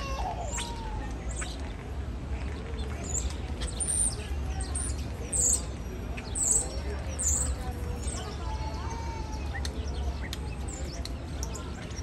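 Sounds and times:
starling singing clicks and whistles: 0:00.5 - 0:01.8, 0:02.5 - 0:08.3, 0:09.3 - 0:12.0.

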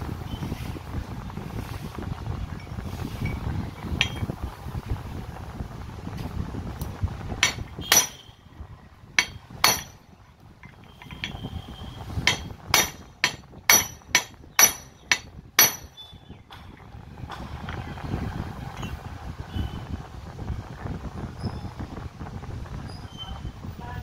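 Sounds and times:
hammer striking metal: 0:04.0 - 0:04.3, 0:07.4 - 0:08.3, 0:09.2 - 0:11.4, 0:12.2 - 0:16.0.

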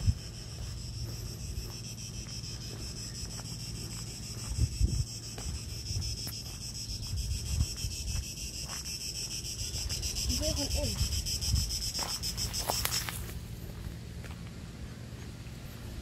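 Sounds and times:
wind rumbling on microphone: 0:00.0 - 0:01.8, 0:04.2 - 0:08.8, 0:09.4 - 0:13.9
cicadas buzzing: 0:00.0 - 0:16.0.

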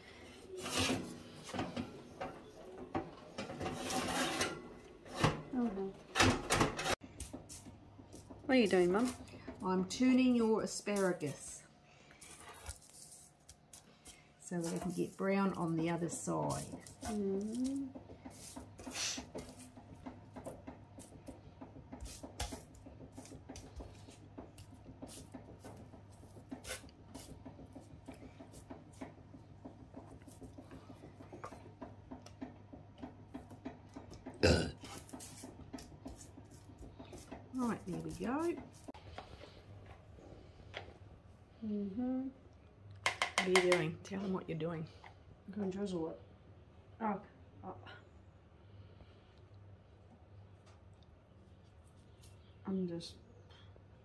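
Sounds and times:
metal tray scraping on oven rack: 0:00.5 - 0:01.8, 0:03.4 - 0:05.5
parchment paper rustling: 0:12.2 - 0:19.6.

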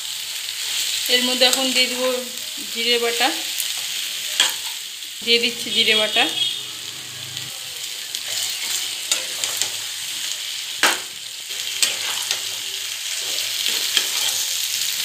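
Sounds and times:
vegetables sizzling in a pan: 0:00.0 - 0:15.0
spatula scraping a pan: 0:08.2 - 0:14.7.

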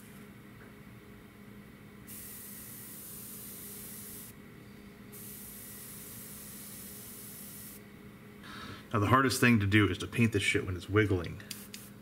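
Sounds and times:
airbrush spraying hiss: 0:02.1 - 0:04.4, 0:05.1 - 0:07.8.

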